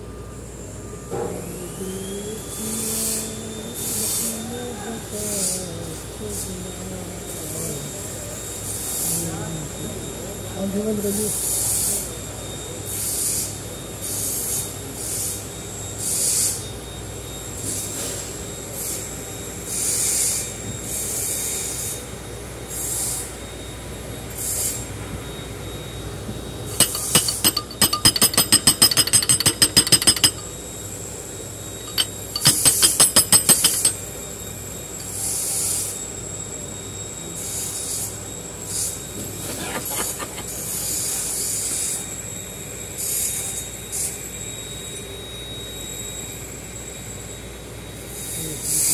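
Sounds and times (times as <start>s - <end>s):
metal scraping strokes: 26.7s - 30.4s, 31.8s - 34.0s.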